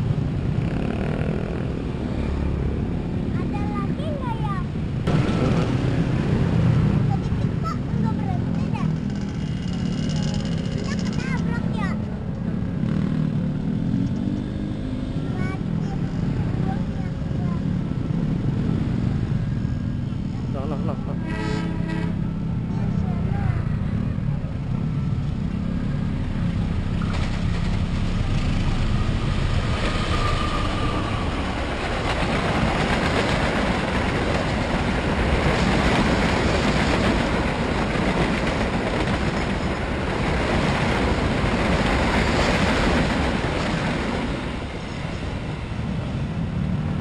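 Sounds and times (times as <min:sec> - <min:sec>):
train wheels rushing on rails: 0:00.0 - 0:14.4, 0:23.9 - 0:47.0.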